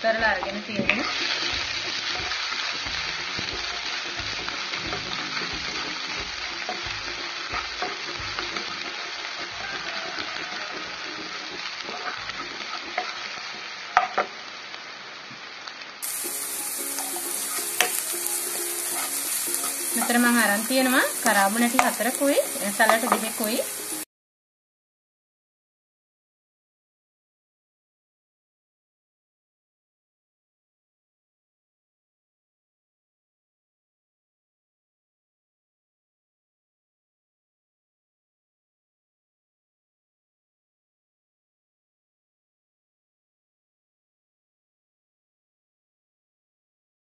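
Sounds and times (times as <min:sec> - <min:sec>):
food sizzling in oil: 0:00.0 - 0:24.1
wooden spatula clicking on pan: 0:14.0 - 0:14.3, 0:19.9 - 0:23.6.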